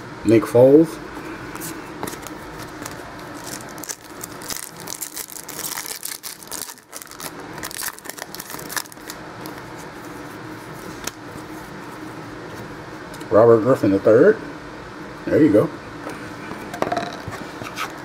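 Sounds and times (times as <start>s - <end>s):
foil wrapper tearing and crinkling: 2.0s - 9.6s.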